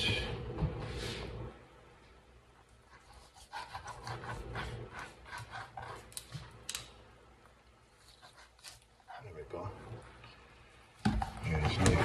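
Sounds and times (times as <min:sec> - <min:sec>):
knife sawing through raw meat: 0:03.1 - 0:05.6.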